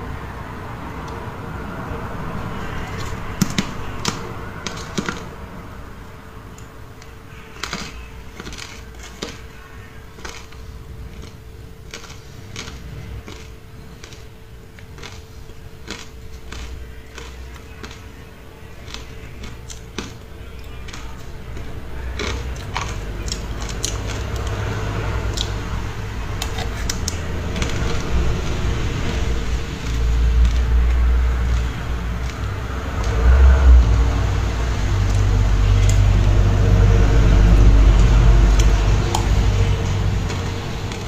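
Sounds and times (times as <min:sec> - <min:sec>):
person crunching frozen ice: 0:07.4 - 0:33.1.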